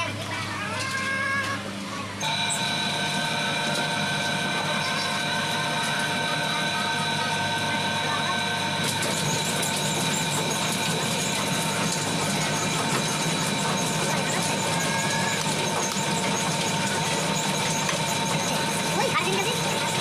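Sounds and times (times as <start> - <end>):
engine-like drone with high whine: 0.0 - 20.0.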